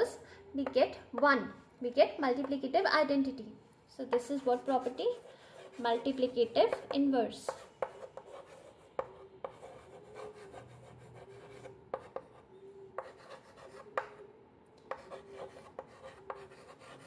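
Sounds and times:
chalk scratching on blackboard: 4.1 - 14.2, 14.9 - 17.0
chalk tapping: 4.1 - 14.2, 14.8 - 17.0.

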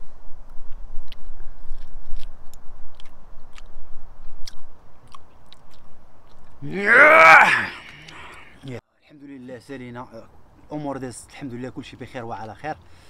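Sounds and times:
man chewing meat: 1.0 - 6.6
mouth and teeth clicks: 1.0 - 6.6.

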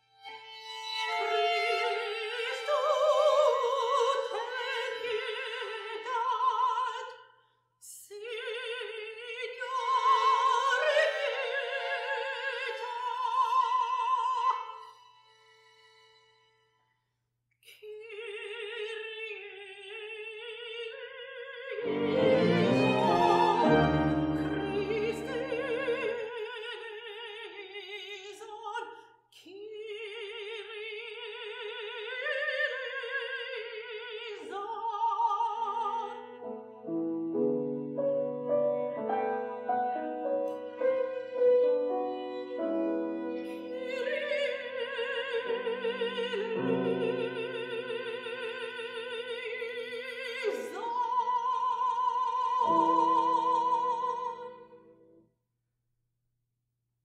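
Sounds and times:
operatic soprano singing: 0.1 - 15.0, 17.7 - 54.9
violin cello and piano: 21.8 - 26.1, 36.9 - 43.9, 45.4 - 47.9, 52.6 - 54.0.

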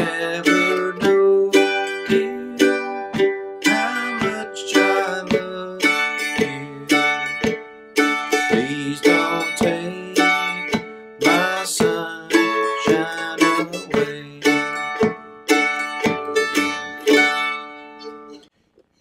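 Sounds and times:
man singing: 0.0 - 7.5, 8.3 - 15.1
mandolin strumming chords: 0.0 - 18.5.

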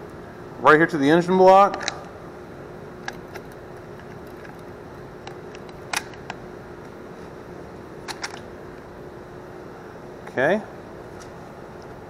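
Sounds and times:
background hum: 0.0 - 12.0.

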